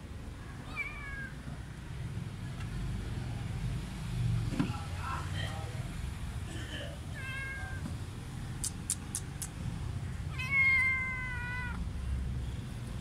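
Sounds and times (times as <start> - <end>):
cat meowing: 0.6 - 1.4, 7.1 - 7.8, 10.3 - 11.8.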